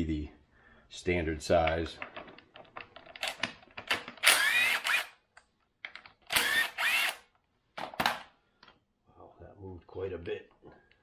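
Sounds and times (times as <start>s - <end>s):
drill spinning with rising whine: 4.2s - 5.2s, 6.3s - 7.2s.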